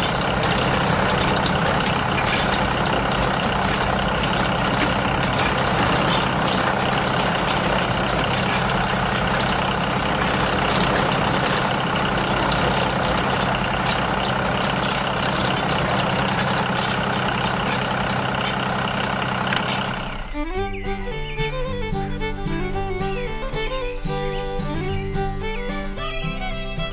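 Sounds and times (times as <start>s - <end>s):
bristles scraping over road: 0.0s - 20.4s.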